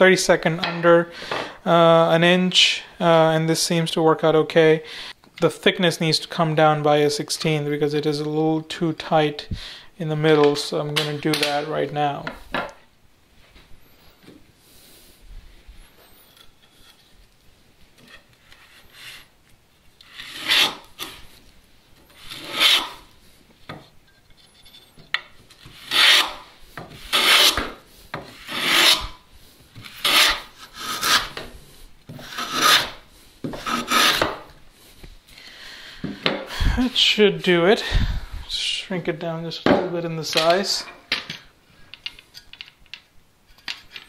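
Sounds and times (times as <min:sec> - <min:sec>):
hand plane rasping strokes: 0:20.1 - 0:21.2, 0:22.2 - 0:23.0, 0:25.6 - 0:29.2, 0:29.8 - 0:31.4, 0:32.1 - 0:34.4.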